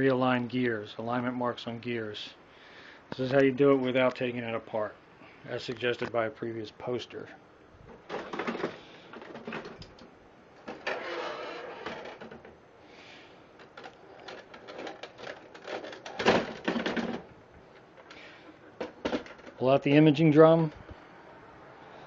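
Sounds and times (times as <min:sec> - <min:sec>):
printer parts clattering: 0:08.0 - 0:10.0, 0:10.6 - 0:12.6, 0:13.6 - 0:17.3, 0:18.7 - 0:19.6.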